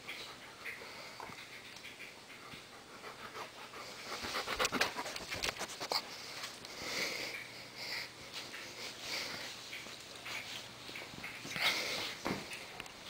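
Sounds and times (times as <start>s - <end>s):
dog panting: 0.0s - 6.6s.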